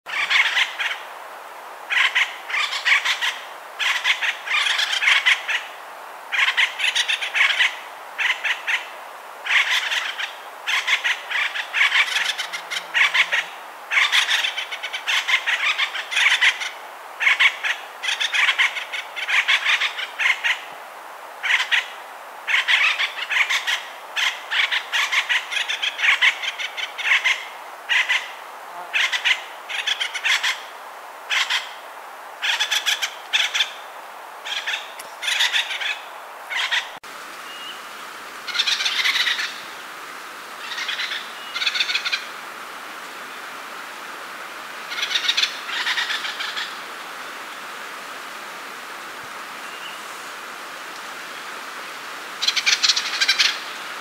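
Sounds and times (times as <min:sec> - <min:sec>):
woodpecker calling: 0:00.1 - 0:01.0, 0:01.9 - 0:05.7, 0:06.3 - 0:20.7, 0:21.4 - 0:21.9, 0:22.5 - 0:30.7, 0:31.3 - 0:31.8, 0:32.4 - 0:33.8, 0:34.4 - 0:37.8, 0:38.5 - 0:39.7, 0:40.6 - 0:42.3, 0:44.9 - 0:46.8, 0:52.4 - 0:53.8.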